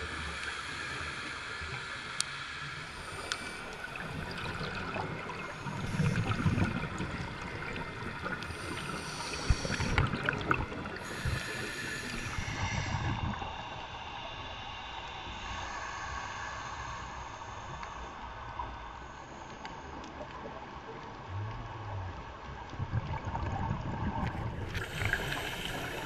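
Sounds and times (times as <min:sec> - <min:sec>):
underwater breathing hiss: 0:00.0 - 0:20.4, 0:24.6 - 0:26.0
exhaled bubbles rumbling: 0:03.1 - 0:11.5, 0:20.5 - 0:26.0.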